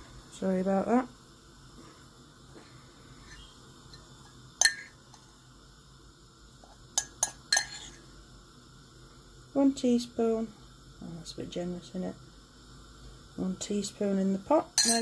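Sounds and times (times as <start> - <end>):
metal spoon clinking against ceramic mug: 4.6 - 4.9, 7.0 - 7.9, 14.8 - 15.0.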